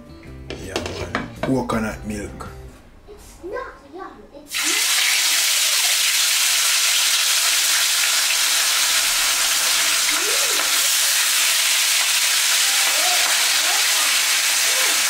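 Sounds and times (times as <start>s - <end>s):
fish sizzling in a pan: 4.5s - 15.0s.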